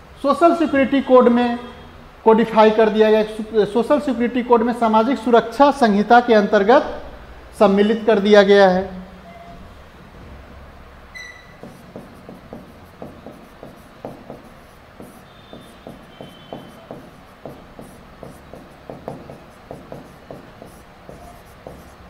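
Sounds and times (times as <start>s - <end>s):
marker squeaks: 11.2s - 22.0s
marker pen writing on a board: 11.5s - 22.0s.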